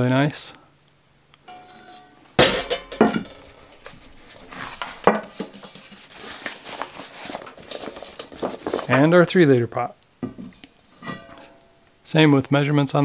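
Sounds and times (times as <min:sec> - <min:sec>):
metal cooking pots clanking: 0:01.5 - 0:05.8, 0:10.2 - 0:11.8
fabric sack rustling: 0:03.6 - 0:08.9.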